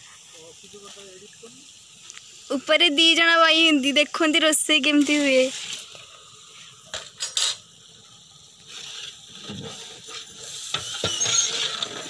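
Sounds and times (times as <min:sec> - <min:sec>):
metal ladle scraping a pot: 0:08.7 - 0:12.0.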